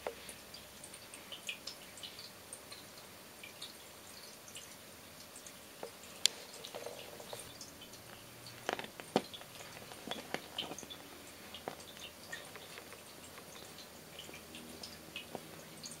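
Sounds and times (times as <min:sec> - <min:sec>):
kitten biting cushion clicks: 0:08.6 - 0:13.6.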